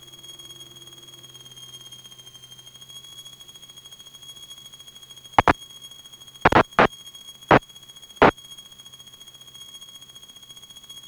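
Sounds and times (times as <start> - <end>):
crackling static pops: 6.5 - 6.9
high electrical whine: 6.5 - 6.9.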